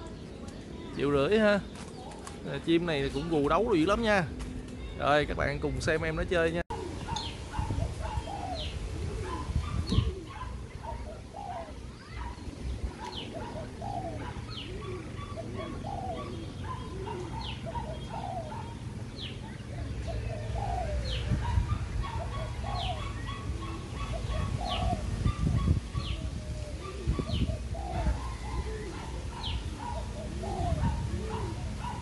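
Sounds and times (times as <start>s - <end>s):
dove cooing: 6.7s - 32.0s.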